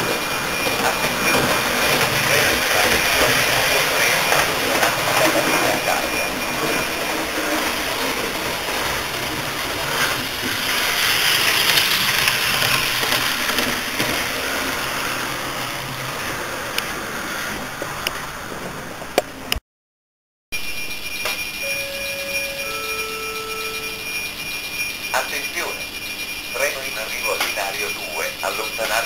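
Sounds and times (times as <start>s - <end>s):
model train rushing noise: 0.0s - 19.1s, 21.1s - 29.0s.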